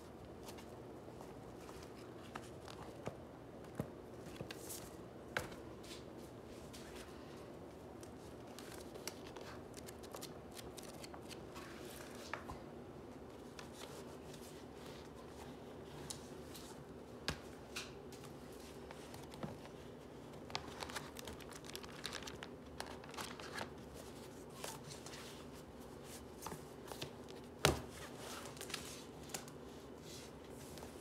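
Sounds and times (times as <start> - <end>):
paper rustling: 8.0 - 12.5, 18.5 - 25.5
notebook pages flipping: 8.3 - 12.4, 18.6 - 25.4.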